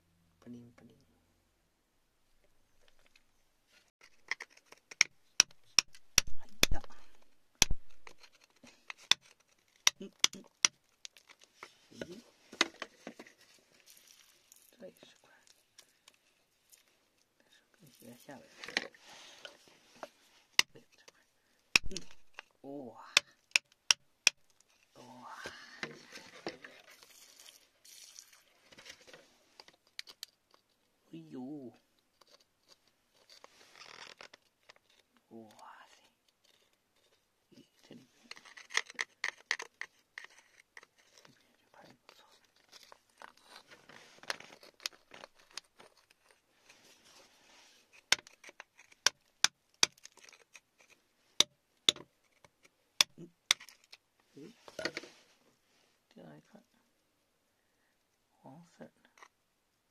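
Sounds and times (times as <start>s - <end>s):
metal tool scraping in clay: 3.9s - 12.0s
stones clicking and tapping: 4.0s - 13.3s, 20.0s - 22.5s, 23.1s - 24.7s, 38.3s - 41.3s, 47.9s - 54.0s
person exclaiming: 10.0s - 10.5s.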